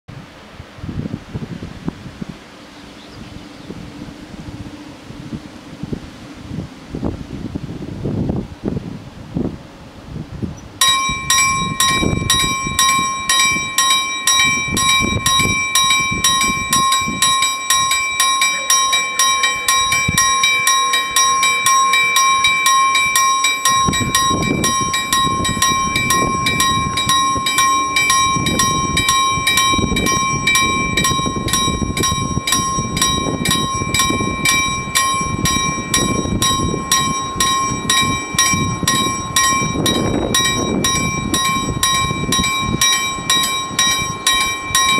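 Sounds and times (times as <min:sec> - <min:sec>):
level crossing warning bells clanging: 0:10.8 - 0:44.9.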